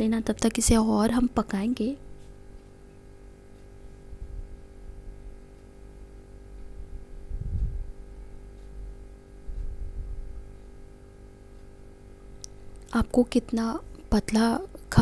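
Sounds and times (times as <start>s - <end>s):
electrical hum: 0.0s - 15.0s.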